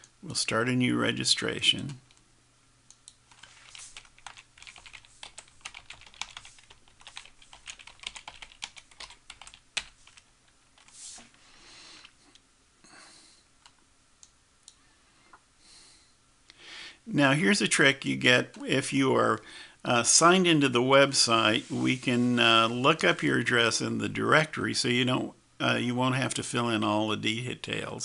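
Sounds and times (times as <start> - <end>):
faint keyboard typing: 2.9 - 12.4, 13.6 - 14.8
soft hissing: 3.3 - 4.1, 10.8 - 13.5, 18.6 - 23.4.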